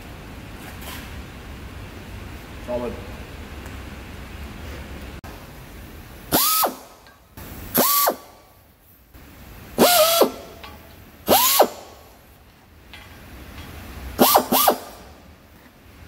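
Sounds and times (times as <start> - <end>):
air drill whining: 6.3 - 6.9, 7.7 - 8.3, 9.8 - 10.5, 11.3 - 12.0, 14.2 - 15.1
air hiss: 6.3 - 8.5, 9.8 - 10.6, 11.2 - 12.1.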